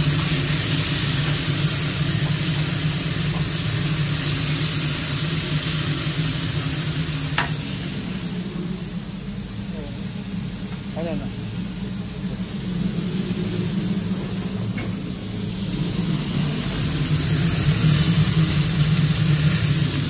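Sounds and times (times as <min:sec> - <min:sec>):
burger patties sizzling on griddle: 0:00.0 - 0:08.4, 0:15.0 - 0:20.0
kitchen machinery hum: 0:00.0 - 0:20.0.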